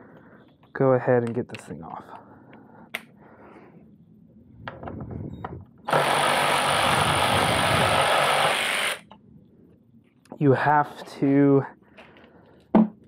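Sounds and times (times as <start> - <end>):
power ratchet spinning: 5.9 - 9.0.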